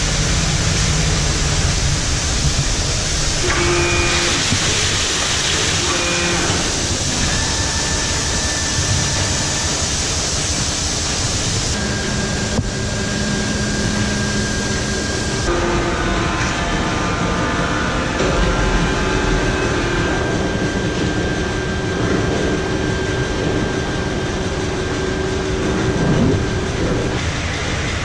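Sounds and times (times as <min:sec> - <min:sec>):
heavy machinery drone: 0:00.0 - 0:28.0.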